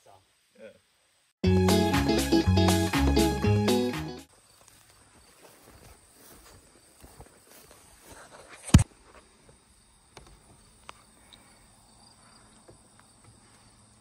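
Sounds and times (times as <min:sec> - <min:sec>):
crickets trilling: 0:04.3 - 0:08.0, 0:09.0 - 0:14.0.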